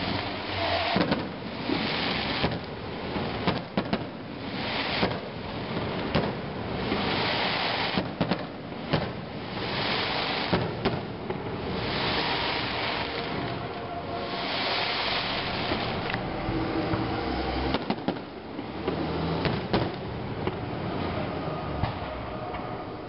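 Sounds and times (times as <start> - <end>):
rushing hiss: 0.0 - 3.8, 4.4 - 6.0, 6.6 - 18.1
firework bangs: 0.0 - 22.3.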